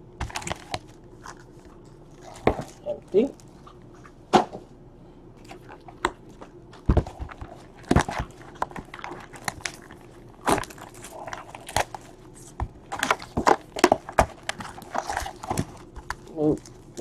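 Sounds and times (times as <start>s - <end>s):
card packs and box knocking: 0.2s - 0.9s, 6.0s - 17.0s
foil wrappers crinkling: 6.6s - 17.0s.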